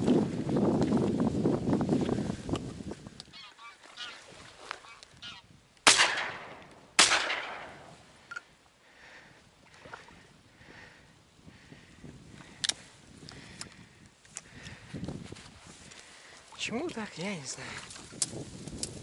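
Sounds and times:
waterfowl honking: 3.3s - 5.4s
shotgun shots: 5.8s - 8.0s.

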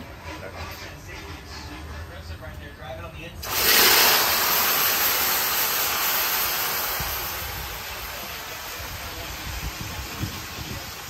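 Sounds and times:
meat sizzling in a pot: 3.4s - 11.0s.

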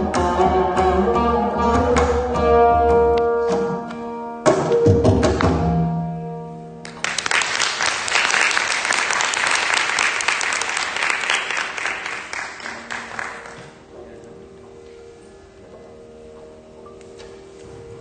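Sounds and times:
audience applause: 6.9s - 13.8s.

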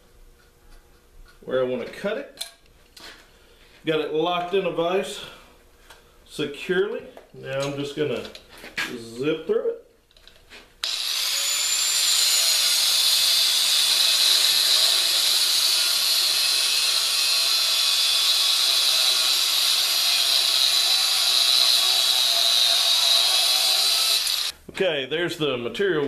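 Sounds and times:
angle grinder cutting steel: 10.8s - 24.5s.

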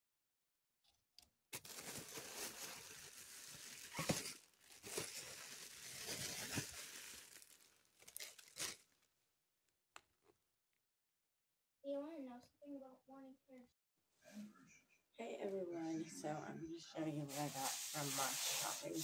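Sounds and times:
plastic bags rustling: 1.6s - 9.1s, 17.3s - 19.0s.

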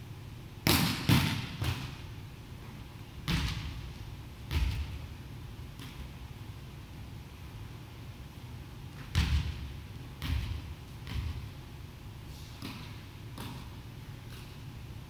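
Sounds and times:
volleyball smack: 0.6s - 1.9s
ball bouncing thuds: 4.5s - 5.0s, 9.0s - 11.5s, 12.6s - 13.7s.

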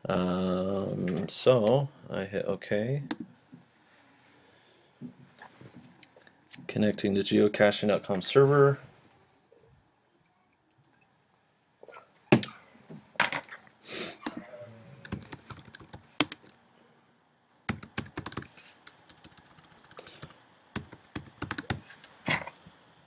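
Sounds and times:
typing on computer keyboard: 15.0s - 16.6s, 17.7s - 21.8s.

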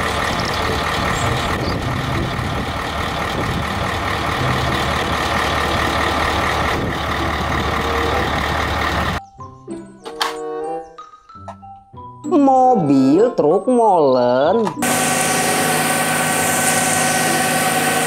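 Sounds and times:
diesel truck engine running: 0.0s - 9.2s, 14.7s - 18.0s
children's mallet music: 9.2s - 14.8s.

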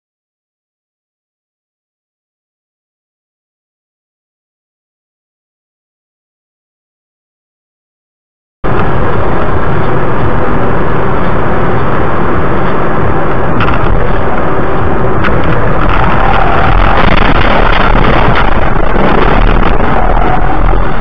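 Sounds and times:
car road and wind noise: 8.6s - 21.0s.

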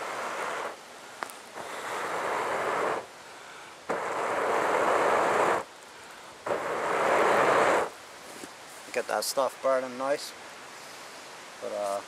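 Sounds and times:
man blowing onto coals: 0.0s - 8.0s.

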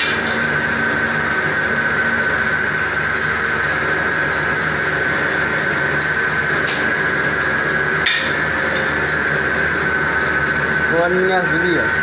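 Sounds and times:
machine motor whine with ticking: 0.0s - 12.0s.

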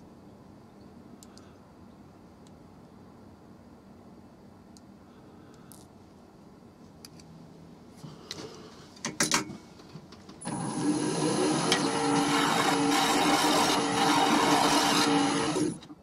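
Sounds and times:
wood lathe running: 10.5s - 15.9s.

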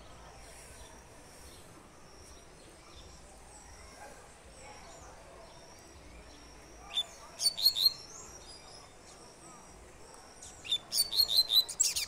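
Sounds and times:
faint high bird chirps: 0.0s - 9.7s, 10.4s - 12.0s
low outdoor background: 0.0s - 12.0s.

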